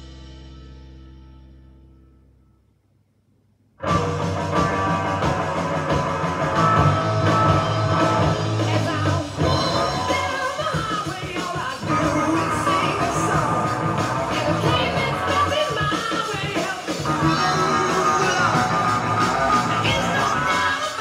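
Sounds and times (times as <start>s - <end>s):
rock music with singing: 3.8s - 21.0s.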